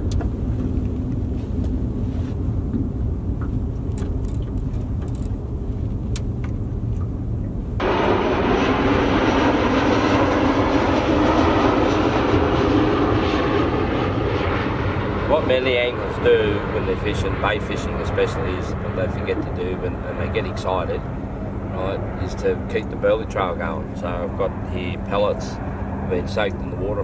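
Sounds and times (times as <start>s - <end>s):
jet airliner passing overhead: 0.0s - 27.0s
low steady rumble: 0.0s - 27.0s.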